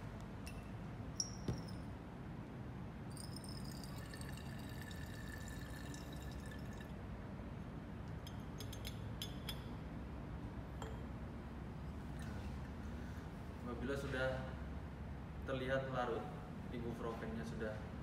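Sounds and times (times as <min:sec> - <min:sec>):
glass clinks: 0:00.5 - 0:01.9
glass ringing: 0:00.5 - 0:01.9, 0:03.1 - 0:06.9
liquid pouring into glass flask: 0:03.1 - 0:07.0.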